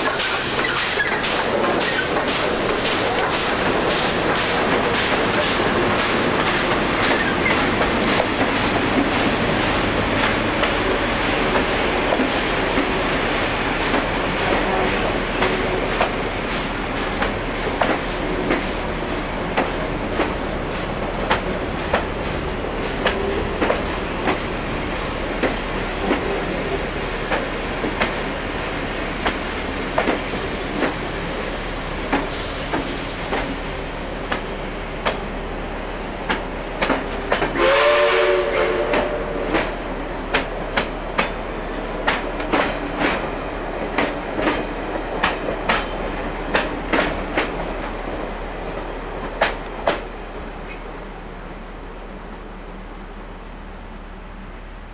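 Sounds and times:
train wheels clicking over rail joints: 0:00.0 - 0:28.3, 0:28.9 - 0:35.3, 0:36.2 - 0:37.7, 0:38.9 - 0:50.9
train rumble: 0:00.0 - 0:54.9
train horn blast: 0:37.6 - 0:39.6.

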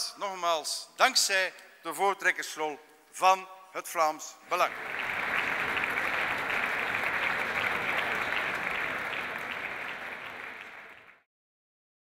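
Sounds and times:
many hands clapping: 0:04.5 - 0:11.3.

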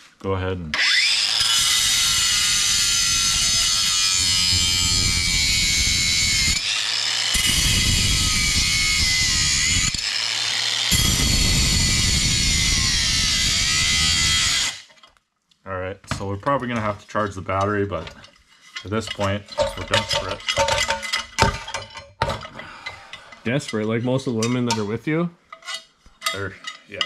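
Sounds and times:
angle grinder cutting steel: 0:00.7 - 0:15.0, 0:18.8 - 0:21.5.

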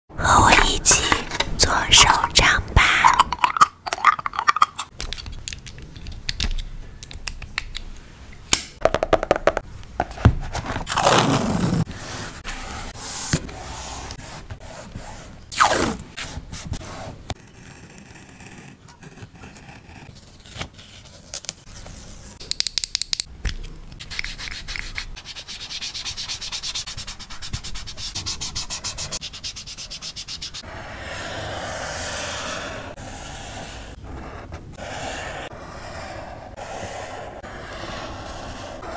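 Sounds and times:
rubbing and scratching paper: 0:24.0 - 0:38.9.

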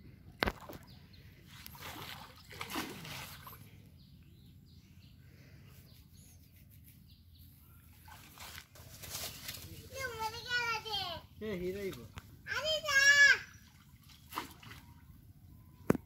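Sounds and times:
faint bird chirps: 0:00.1 - 0:08.2, 0:13.4 - 0:16.0
water sloshing and splashing: 0:00.4 - 0:03.8, 0:07.9 - 0:09.6, 0:13.5 - 0:15.2.

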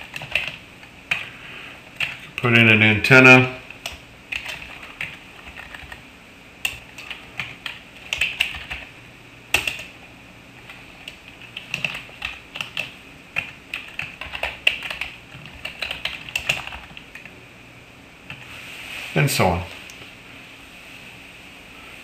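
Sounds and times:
keyboard typing: 0:00.0 - 0:01.3, 0:02.0 - 0:02.4, 0:03.7 - 0:06.0, 0:06.6 - 0:08.9, 0:09.5 - 0:10.0, 0:10.6 - 0:17.3.

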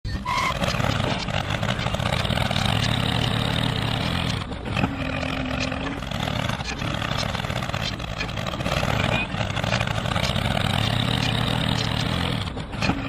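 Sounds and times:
tractor engine running: 0:00.1 - 0:13.0
blade pushing gravel: 0:00.4 - 0:13.0.

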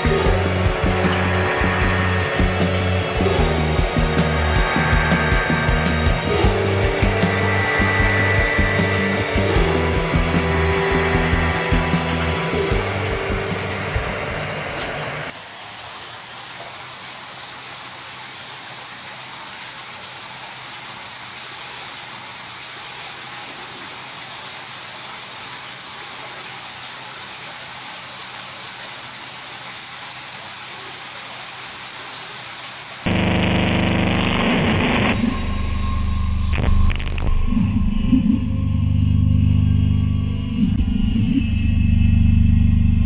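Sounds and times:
loud distorted drone: 0:00.0 - 0:15.3, 0:33.1 - 0:43.0.

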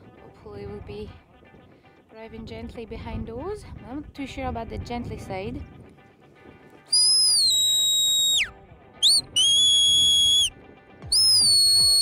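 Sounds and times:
shrill shepherd's whistles: 0:06.9 - 0:10.5, 0:11.1 - 0:12.0.

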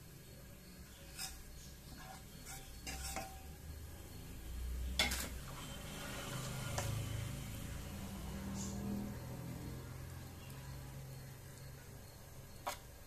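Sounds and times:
butter sizzling: 0:00.0 - 0:07.9
spatula scraping frying pan: 0:00.8 - 0:03.6, 0:04.9 - 0:07.3, 0:12.6 - 0:13.0.

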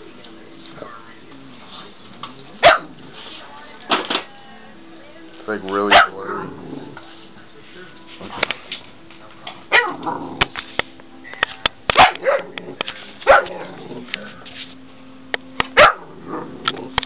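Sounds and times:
puppy play-barking: 0:02.6 - 0:03.0, 0:05.9 - 0:06.5, 0:09.7 - 0:10.2, 0:11.9 - 0:12.6, 0:13.2 - 0:13.8, 0:15.8 - 0:16.2.

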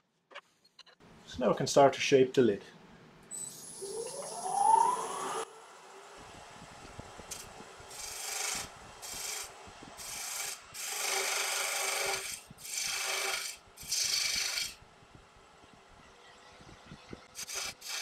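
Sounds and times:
wood lathe humming: 0:07.3 - 0:14.7.

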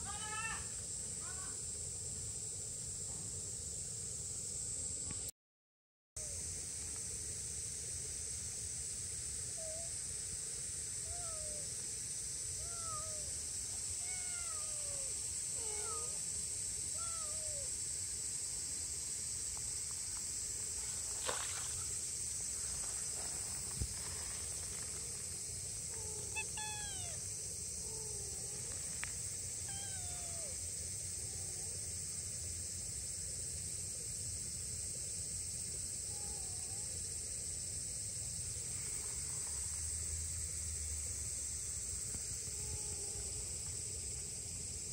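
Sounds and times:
steady high hiss: 0:00.0 - 0:05.3, 0:06.2 - 0:44.9
kitten meowing: 0:11.1 - 0:11.6, 0:12.6 - 0:13.3, 0:14.0 - 0:16.2, 0:17.0 - 0:17.7, 0:26.0 - 0:27.2, 0:29.6 - 0:30.6.

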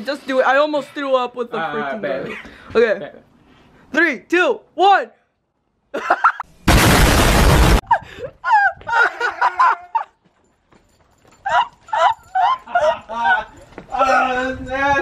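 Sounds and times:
harsh burst of noise: 0:06.6 - 0:07.8.

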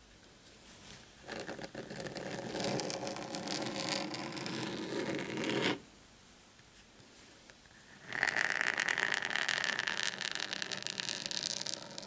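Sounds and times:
fingernails scratching a mat: 0:01.3 - 0:05.8.

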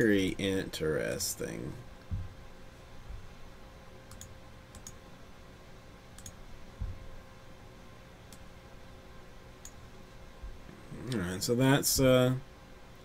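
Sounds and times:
dull low thump: 0:02.1 - 0:02.4, 0:06.8 - 0:07.2
computer clicks: 0:04.0 - 0:05.0, 0:06.1 - 0:06.4.

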